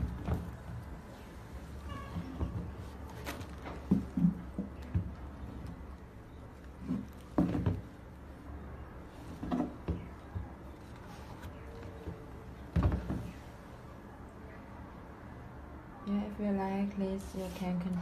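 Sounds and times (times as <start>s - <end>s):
sneakers knocking and rustling: 6.7s - 8.1s.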